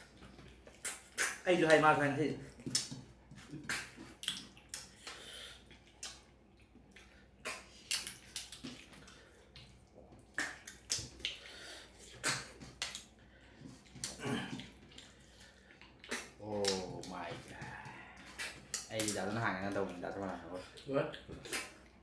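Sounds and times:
wet sucking and slurping: 10.3s - 22.0s.

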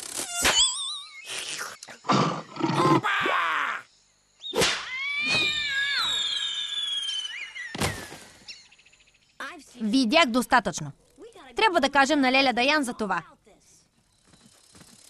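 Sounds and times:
cartoon big-cat roar: 2.1s - 3.2s
long falling whistle: 4.9s - 8.1s.

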